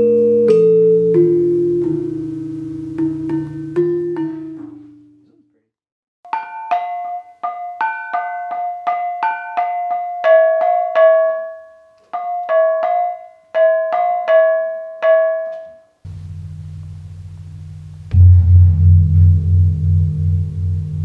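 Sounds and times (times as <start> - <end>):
low steady hum: 16.1 - 21.0
small kettle gongs struck: 16.1 - 21.0.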